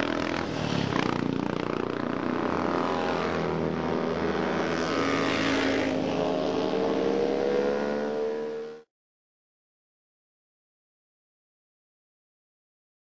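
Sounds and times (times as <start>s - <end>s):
motorcycles riding past: 0.0s - 8.9s.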